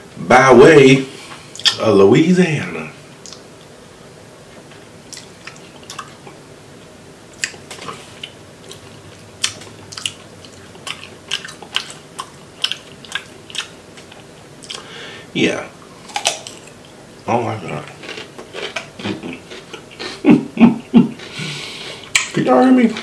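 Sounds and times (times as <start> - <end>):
wet chewing and lip smacks: 3.2 - 3.5, 5.1 - 6.4, 7.3 - 14.9.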